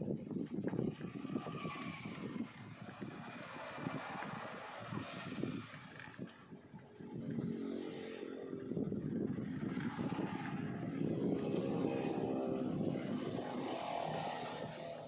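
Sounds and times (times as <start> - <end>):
engine running: 0.1 - 15.0.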